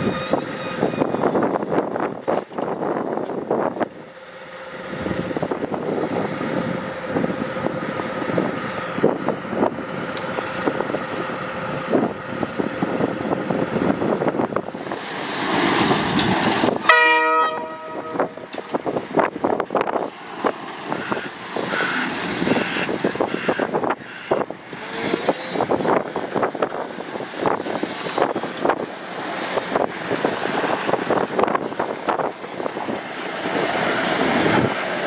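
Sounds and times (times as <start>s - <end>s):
diesel train engine and rail noise: 0.0s - 35.0s
train horn blast: 16.8s - 18.5s.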